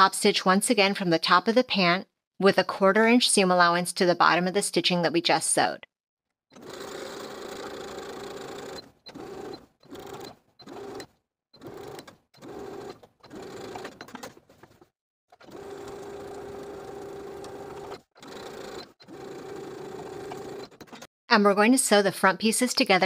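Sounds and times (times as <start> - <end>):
sewing machine stitching: 6.5 - 21.1.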